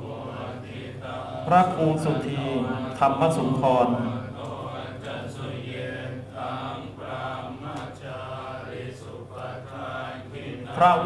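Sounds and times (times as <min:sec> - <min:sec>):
monks chanting: 0:00.0 - 0:11.0.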